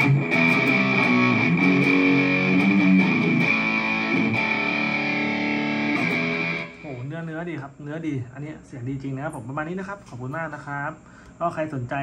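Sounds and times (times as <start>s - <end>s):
electric guitar with delay: 0.0s - 7.1s.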